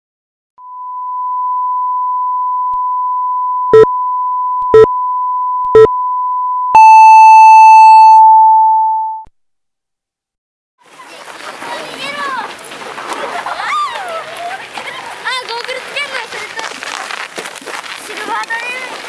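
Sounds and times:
steady electronic sine tone: 0:00.6 - 0:09.2
long beep: 0:00.6 - 0:09.3
short low beeps: 0:00.6 - 0:09.3.

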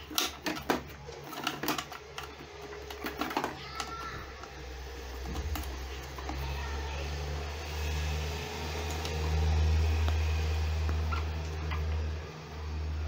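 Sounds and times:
clicks of plastic being handled: 0:00.0 - 0:04.6.

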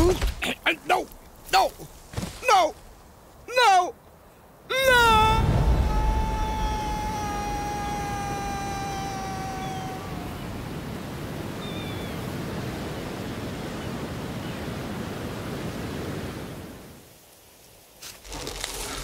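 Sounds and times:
wind: 0:00.0 - 0:19.0
ocean surf: 0:02.4 - 0:17.2.

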